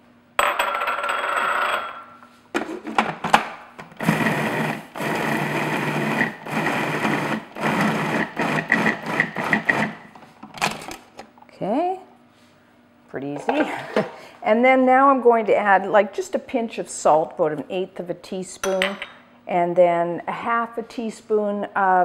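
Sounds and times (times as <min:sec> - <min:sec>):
food processor motor running: 0:03.9 - 0:10.1.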